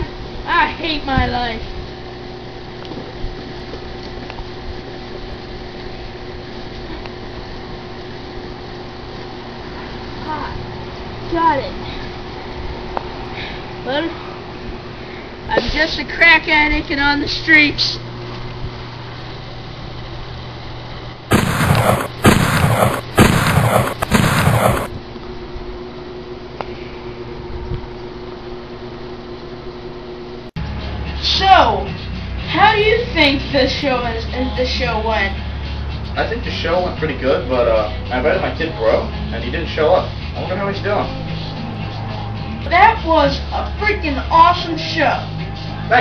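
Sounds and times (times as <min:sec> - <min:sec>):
steady background hum: 0:00.0 - 0:46.0
gunshot bangs: 0:21.3 - 0:25.0.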